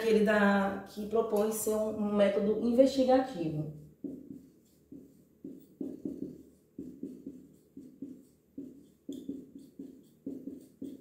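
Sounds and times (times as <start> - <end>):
marker writing on whiteboard: 3.8 - 11.0.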